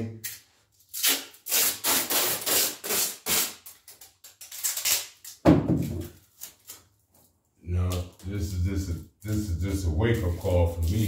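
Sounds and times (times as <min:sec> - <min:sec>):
tape rasping and rustling: 0:00.2 - 0:05.4, 0:06.0 - 0:08.4
loud thump: 0:05.5 - 0:06.0.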